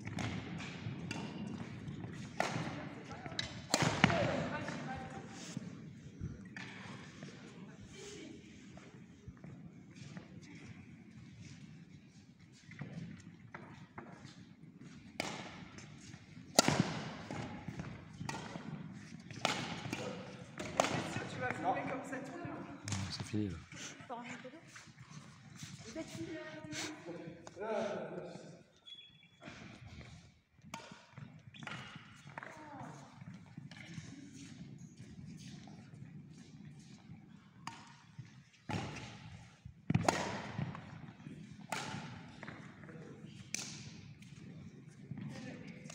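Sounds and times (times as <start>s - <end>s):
rackets striking shuttlecock: 3.4s - 4.4s, 16.5s - 21.6s, 39.9s - 40.9s, 41.7s - 42.3s.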